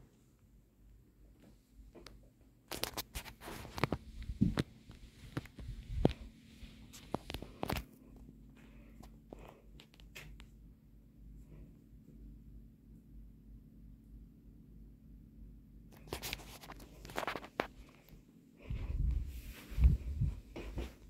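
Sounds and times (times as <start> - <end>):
ceiling fan hum: 0.0 - 21.0
phone being handled: 16.0 - 17.8.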